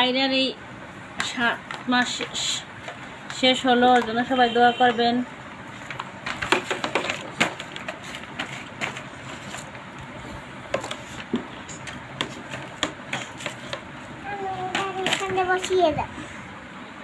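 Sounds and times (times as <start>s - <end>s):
toys knocking and clicking: 5.8s - 9.6s, 10.7s - 13.9s, 14.6s - 15.8s.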